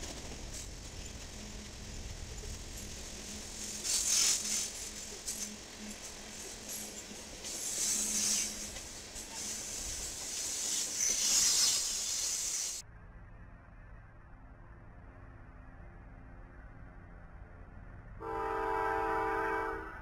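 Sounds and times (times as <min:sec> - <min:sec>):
freight train wheels rattling: 0:00.0 - 0:12.8.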